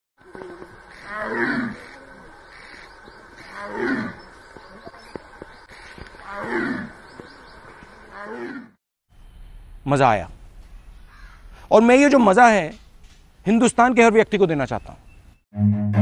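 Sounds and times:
tiger roaring: 0.2 - 4.3, 6.2 - 7.0.

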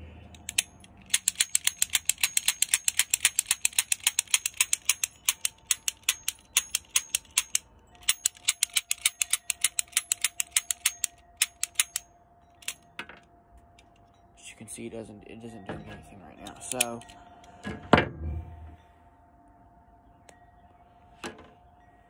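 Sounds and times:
toy cap gun dry-clicking: 0.4 - 12.0, 16.5 - 17.2.

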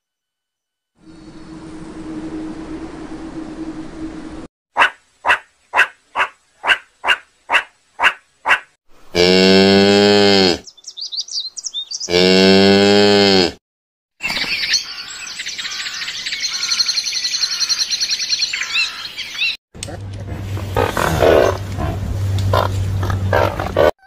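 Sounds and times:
steady hum: 1.0 - 4.5
cow mooing: 9.1 - 10.6, 12.1 - 13.6, 20.8 - 24.0
bird singing: 10.6 - 12.2, 14.2 - 19.6.

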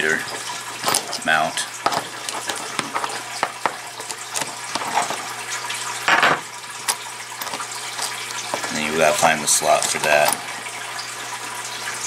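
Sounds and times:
metal pieces clattering down: 0.7 - 5.3, 6.1 - 10.5
small metal parts clicking: 0.8 - 5.2, 6.8 - 10.4.

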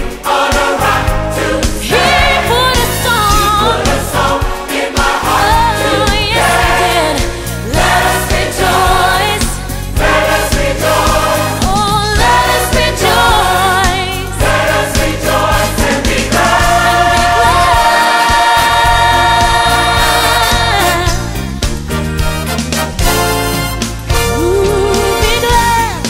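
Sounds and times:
gospel choir singing: 0.0 - 25.6
instrumental backing with beat: 0.0 - 26.0.

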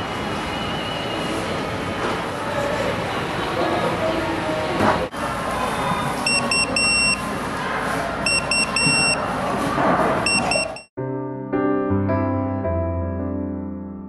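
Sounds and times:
electronic beeper pattern: 6.3 - 7.2, 8.3 - 9.2, 10.3 - 10.9
soft piano music: 11.0 - 14.0.

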